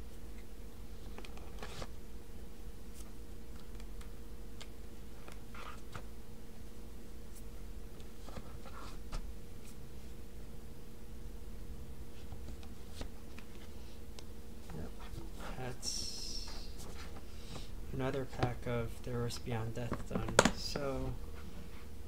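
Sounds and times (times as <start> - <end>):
steady low hum: 0.0 - 22.0
cards tapping and rustling: 19.3 - 21.1.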